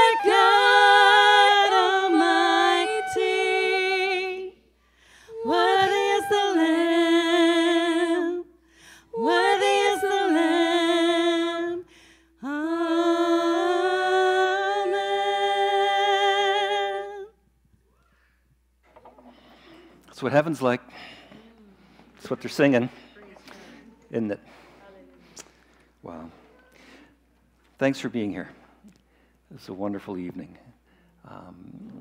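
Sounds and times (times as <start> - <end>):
singers singing unaccompanied: 0.0 - 4.6, 5.3 - 8.5, 9.1 - 17.2.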